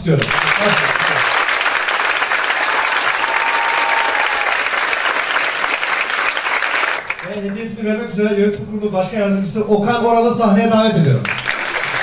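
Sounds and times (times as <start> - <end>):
large audience applauding: 0.0 - 7.8, 11.2 - 12.0.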